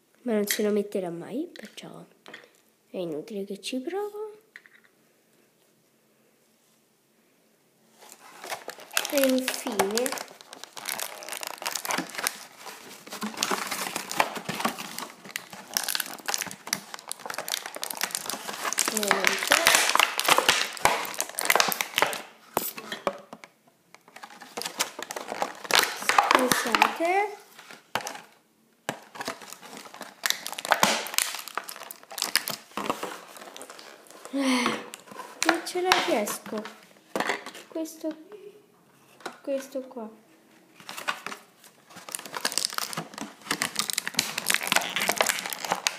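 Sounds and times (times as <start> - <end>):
plastic packaging crinkling: 8.0 - 37.7, 40.7 - 45.9.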